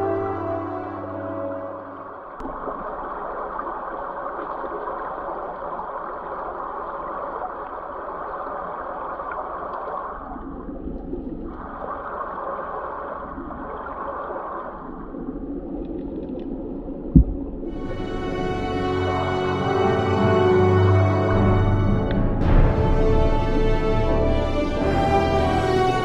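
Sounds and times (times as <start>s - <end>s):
underwater river current rushing: 0.0s - 19.5s.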